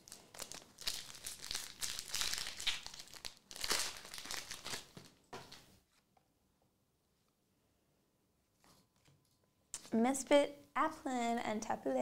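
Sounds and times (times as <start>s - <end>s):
foil pack crinkling: 0.0s - 5.2s.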